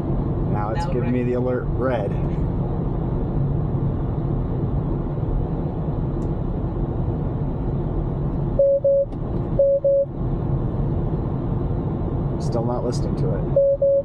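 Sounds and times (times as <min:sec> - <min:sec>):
road and tyre noise in car: 0:00.0 - 0:14.0
short warning beeps: 0:08.6 - 0:10.1, 0:13.5 - 0:14.0.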